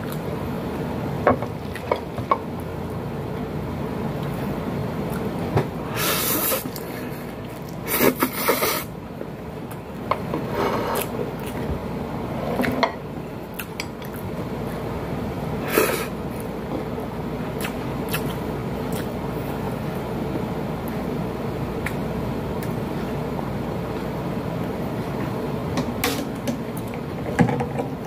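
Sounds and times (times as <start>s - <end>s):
chewing and lip smacks: 17.6s - 19.2s.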